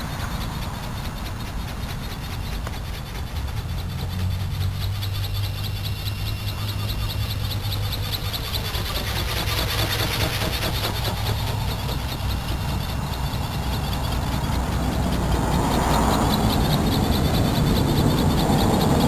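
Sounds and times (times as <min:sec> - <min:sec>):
rapid pulsed high chirping: 0:00.0 - 0:19.0
wind buffeting microphone: 0:09.9 - 0:19.0.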